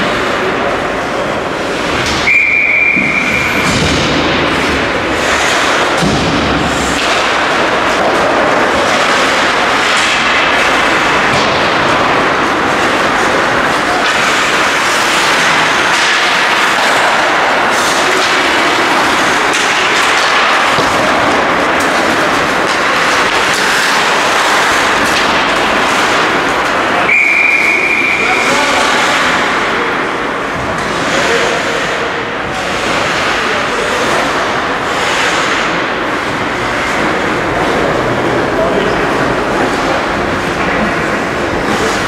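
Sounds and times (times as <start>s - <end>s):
skates scraping ice: 0.0s - 42.0s
hockey sticks and puck knocking: 1.7s - 38.1s
whistle blown: 2.2s - 3.6s, 27.1s - 28.3s.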